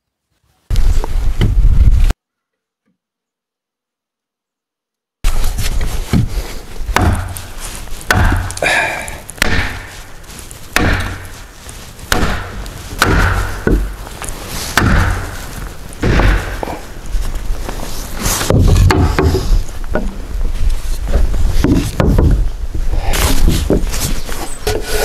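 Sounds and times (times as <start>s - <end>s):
mallet striking timber: 6.9s - 7.5s, 8.1s - 8.6s, 9.4s - 10.0s, 10.7s - 11.3s, 12.1s - 14.0s, 14.8s - 15.4s, 16.0s - 16.8s, 18.5s - 19.4s.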